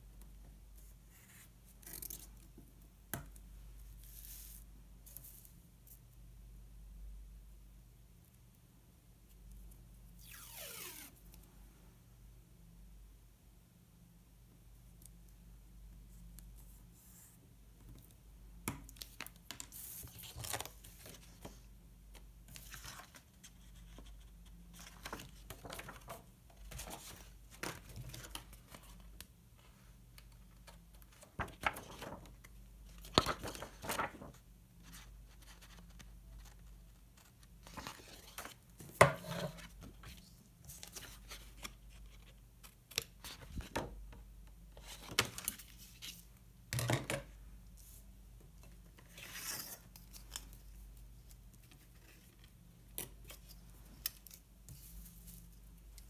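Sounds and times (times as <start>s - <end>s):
paper rustling and tearing: 33.2s - 34.3s.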